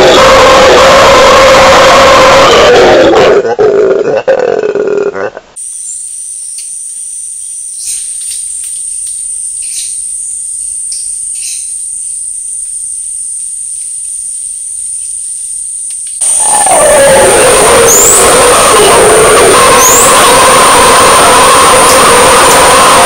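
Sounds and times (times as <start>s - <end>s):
howler monkey roar: 0.0s - 5.6s, 16.2s - 23.0s
insects droning: 5.6s - 23.0s.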